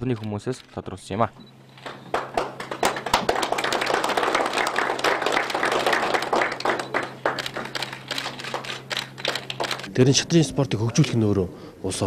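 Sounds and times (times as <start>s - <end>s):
steady low hum: 0.0s - 12.0s
crowd applauding: 1.8s - 9.9s.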